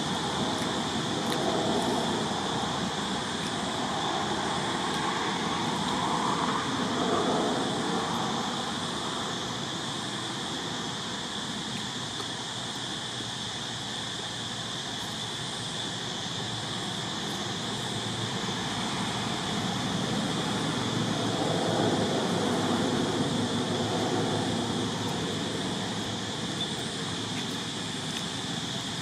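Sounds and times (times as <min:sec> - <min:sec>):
constant high buzz: 0:00.0 - 0:29.0
even outdoor hiss: 0:00.0 - 0:29.0.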